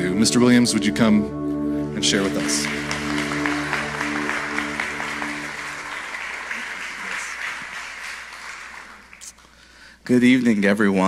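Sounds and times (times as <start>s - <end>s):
held keyboard chord: 0.4s - 6.4s
audience applauding: 2.1s - 9.6s.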